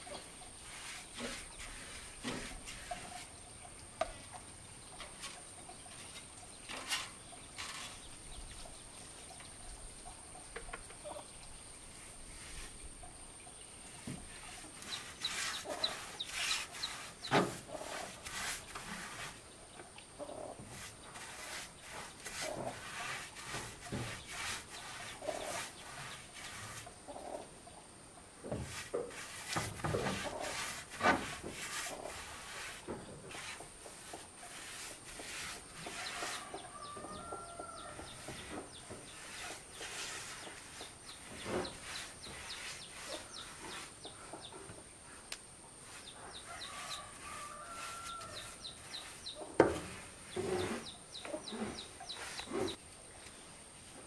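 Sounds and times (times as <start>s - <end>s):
paintbrush rubbing on wooden boards: 0.2s - 3.4s, 11.9s - 12.8s, 13.9s - 19.5s, 20.6s - 26.9s, 28.5s - 37.0s, 37.7s - 44.2s, 45.8s - 52.8s
chickens clucking: 40.4s - 45.0s.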